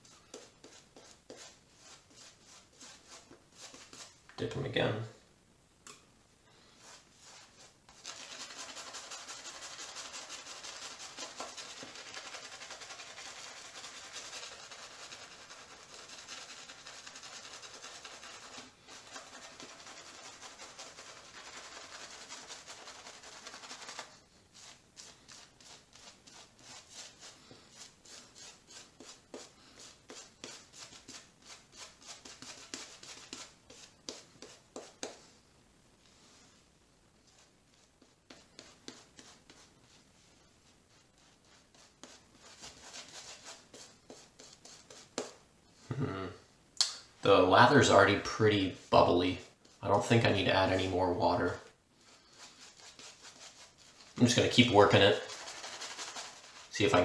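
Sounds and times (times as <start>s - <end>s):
shaving brush scrubbing lather: 0.1s - 4.2s, 6.8s - 35.2s, 52.1s - 57.0s.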